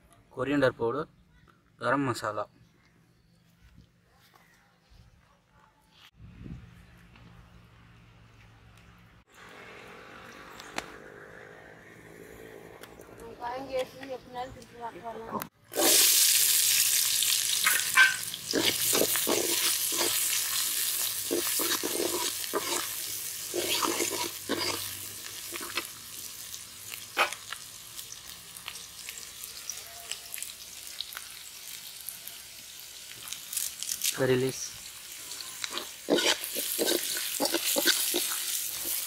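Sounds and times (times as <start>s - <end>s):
onions sizzling in oil: 15.7s - 39.0s
ladle scraping pan: 17.6s - 20.6s, 21.2s - 25.9s, 35.6s - 39.0s.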